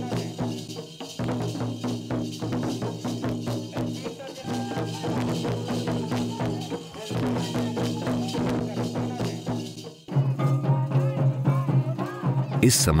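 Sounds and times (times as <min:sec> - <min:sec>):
hand-played barrel drum: 0:00.0 - 0:12.6
drums beating quick rhythm: 0:00.0 - 0:13.0.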